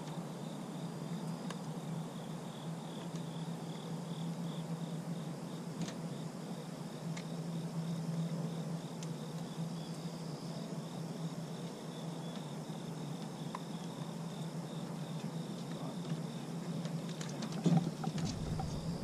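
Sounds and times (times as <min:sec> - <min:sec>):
insects chirping: 0:00.0 - 0:19.0
steady low hum: 0:17.8 - 0:19.0.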